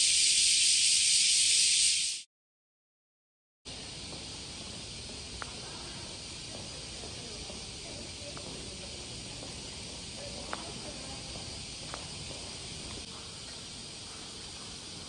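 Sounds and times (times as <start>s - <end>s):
indoor room hiss: 0.0s - 2.3s, 3.7s - 15.0s
faint ticks: 5.3s - 5.7s.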